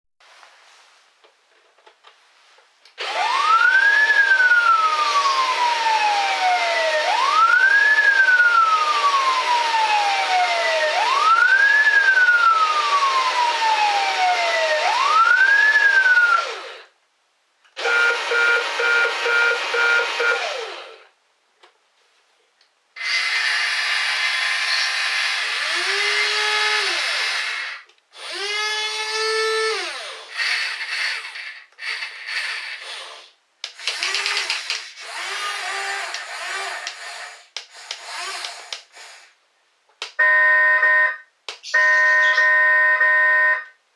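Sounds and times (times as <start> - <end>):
small electric motors whirring: 23.0 - 39.3
electronic beeping: 40.2 - 43.7
toy electronic siren wailing: 40.2 - 43.7.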